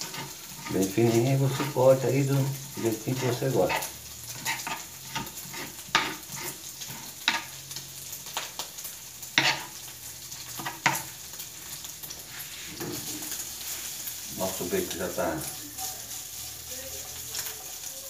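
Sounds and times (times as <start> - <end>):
bacon sizzling in a frying pan: 0.0 - 18.0.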